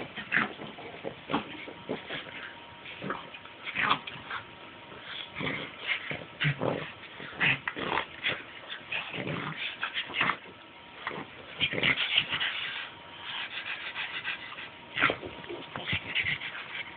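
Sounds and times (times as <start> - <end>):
dogs grunting and whimpering: 0.0 - 12.9.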